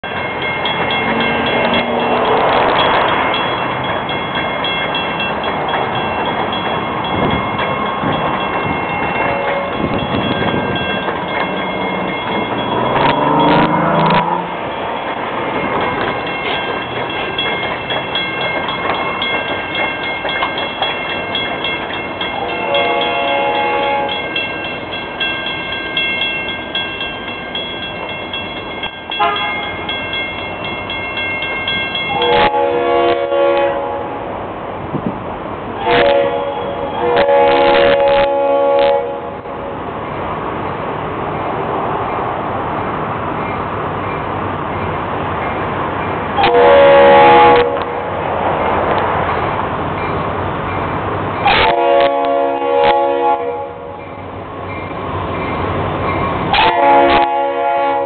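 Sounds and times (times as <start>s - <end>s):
crossing signal bell ringing: 0.0s - 33.7s
train horn chord blasts: 9.2s - 10.1s, 22.3s - 24.4s, 29.1s - 29.7s, 32.1s - 34.3s, 35.8s - 39.4s, 46.4s - 48.0s, 51.4s - 54.0s, 56.5s - 58.0s.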